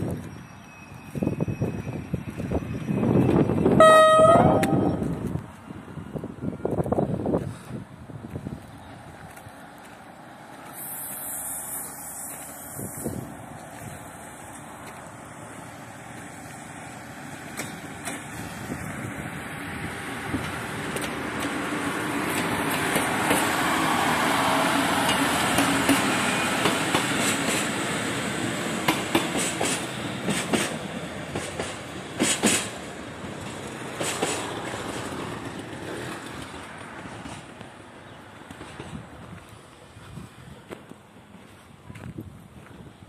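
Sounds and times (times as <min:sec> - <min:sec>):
railcar engine and wheel noise: 0:00.0 - 0:43.0
wheels clacking over rail joints: 0:17.3 - 0:18.6, 0:20.3 - 0:24.2, 0:24.9 - 0:39.2.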